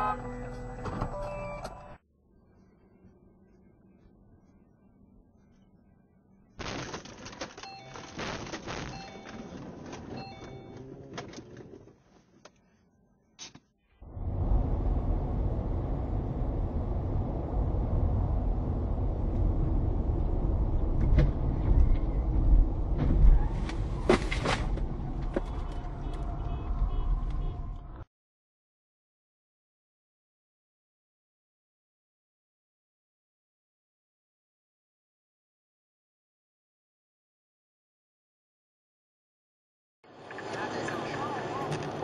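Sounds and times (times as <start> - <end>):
car road and engine noise: 8.9 - 12.7, 13.5 - 28.1, 40.0 - 42.0.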